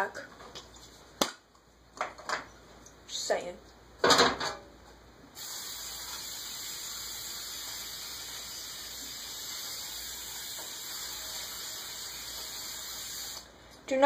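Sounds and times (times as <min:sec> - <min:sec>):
aerosol spray hissing: 0:05.4 - 0:13.5.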